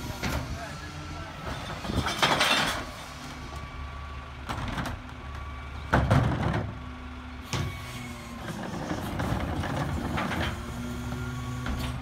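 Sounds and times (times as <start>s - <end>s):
garbage truck engine running: 0.0s - 12.0s
trash carts clattering: 1.4s - 3.0s.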